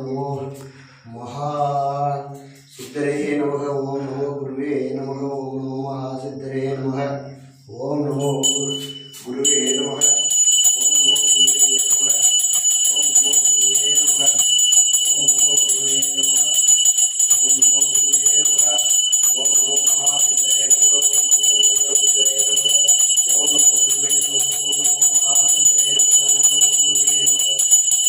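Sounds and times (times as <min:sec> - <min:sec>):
man chanting: 0:00.0 - 0:28.0
brass hand bell ringing: 0:08.2 - 0:28.0.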